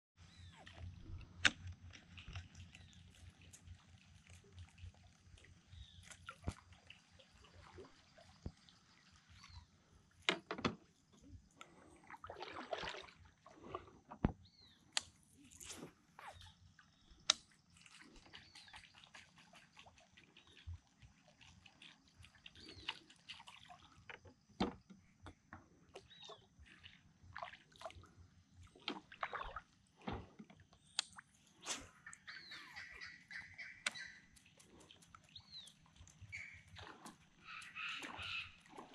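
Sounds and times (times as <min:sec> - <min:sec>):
paddle splashing in water: 0:11.7 - 0:14.0, 0:26.0 - 0:38.9.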